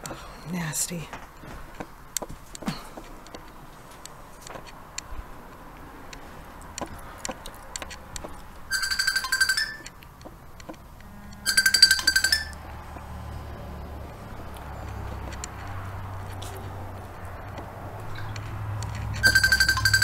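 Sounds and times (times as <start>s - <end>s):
small clicks and crunches: 1.0s - 8.7s, 14.1s - 19.4s
electronic alarm trilling: 8.7s - 10.0s, 11.0s - 12.6s, 19.1s - 20.0s.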